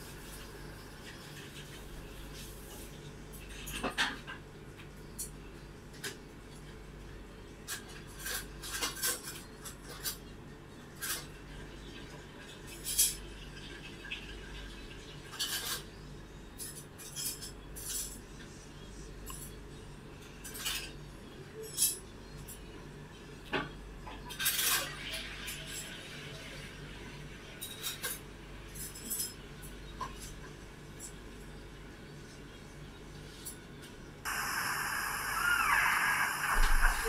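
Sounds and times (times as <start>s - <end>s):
faint low hum: 34.0s - 37.0s.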